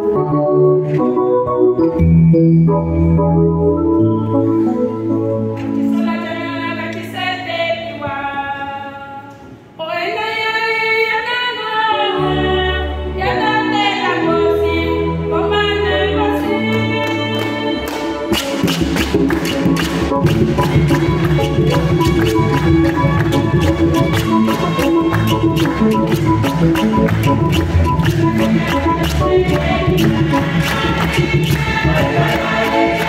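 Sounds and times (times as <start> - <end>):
keyboard accompaniment: 0.0 - 9.8, 11.6 - 33.0
people clapping in rhythm: 16.7 - 33.0
choir singing a hymn: 28.1 - 33.0.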